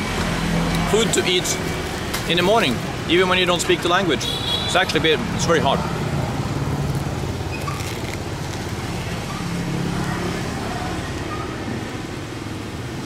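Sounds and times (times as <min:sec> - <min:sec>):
car engines: 0:00.0 - 0:13.0
motorbike engines: 0:00.0 - 0:13.0.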